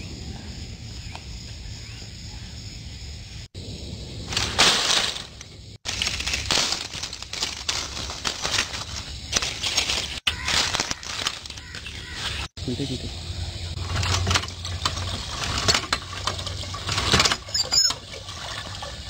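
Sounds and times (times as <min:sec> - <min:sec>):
dry twigs and leaves crackling: 0:04.2 - 0:12.5.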